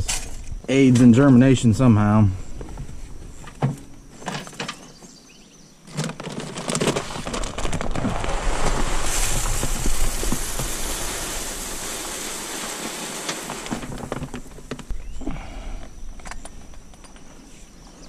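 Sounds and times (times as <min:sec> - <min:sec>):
seeds pouring into a bag: 0:06.3 - 0:14.5.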